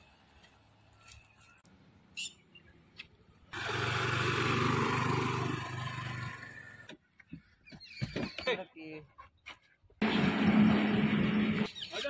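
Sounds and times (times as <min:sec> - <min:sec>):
motor scooter engine running: 0:03.6 - 0:06.7.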